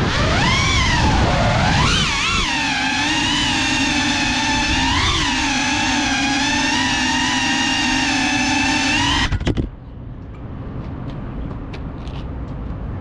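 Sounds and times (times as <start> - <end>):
drone motors whining: 0.0 - 9.7.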